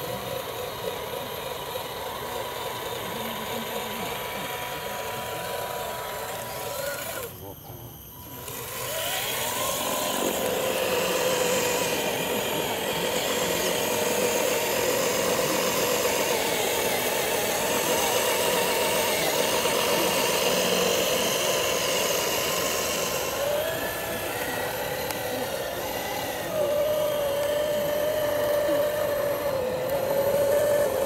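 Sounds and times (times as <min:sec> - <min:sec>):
electric motor whining: 0:00.0 - 0:31.0.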